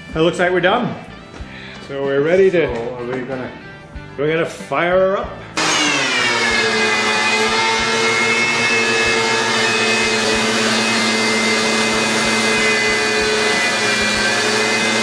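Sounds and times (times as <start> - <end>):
thickness planer planing a board: 5.6 - 15.0.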